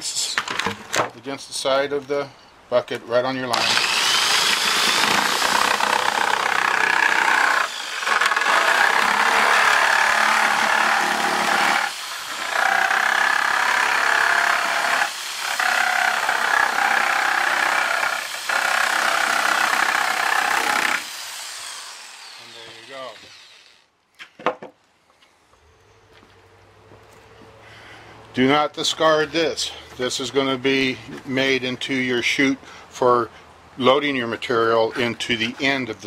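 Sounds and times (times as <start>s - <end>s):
jigsaw cutting plastic: 3.5s - 23.9s.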